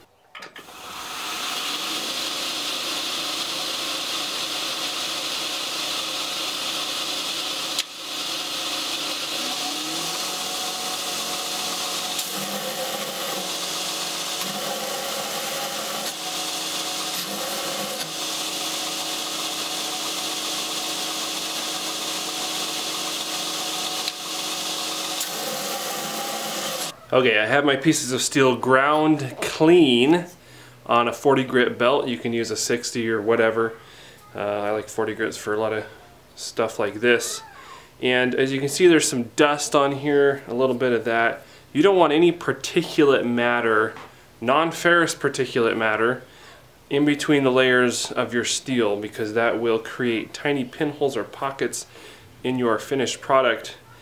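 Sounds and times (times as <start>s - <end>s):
belt grinder grinding steel: 0.6s - 27.0s
grinder motor hum: 0.6s - 27.0s.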